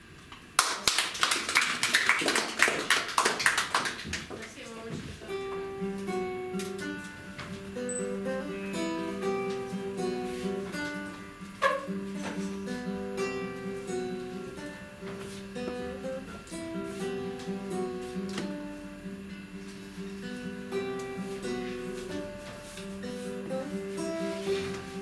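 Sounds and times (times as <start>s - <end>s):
classical guitar playing: 5.2s - 25.0s.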